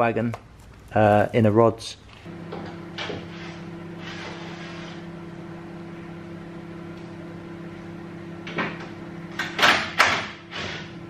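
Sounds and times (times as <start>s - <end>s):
steady hum: 2.0s - 11.0s.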